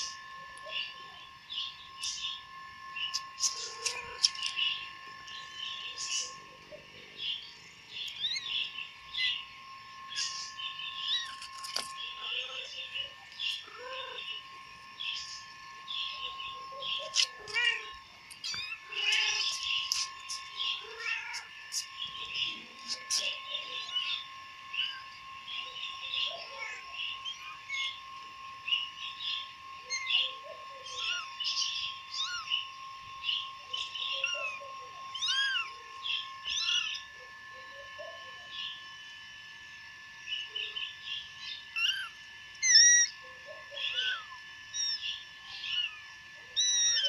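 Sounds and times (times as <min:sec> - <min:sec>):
faint steady whine: 0:00.0 - 0:47.0
kittens mewing: 0:03.1 - 0:04.8, 0:11.0 - 0:14.4, 0:16.4 - 0:24.2, 0:33.8 - 0:35.7, 0:36.5 - 0:37.1, 0:41.7 - 0:47.0
high chirps: 0:15.0 - 0:24.2, 0:43.9 - 0:46.0.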